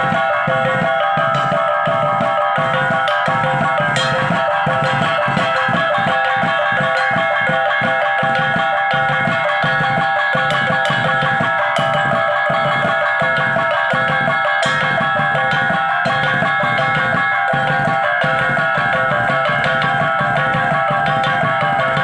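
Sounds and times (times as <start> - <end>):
barrel drum beat: 0.0 - 22.0
hand-held gongs ringing: 0.0 - 22.0.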